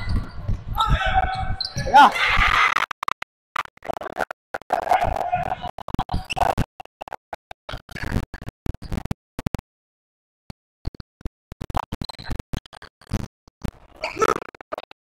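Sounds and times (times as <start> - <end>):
basketball game gym noise: 0.0 - 2.8.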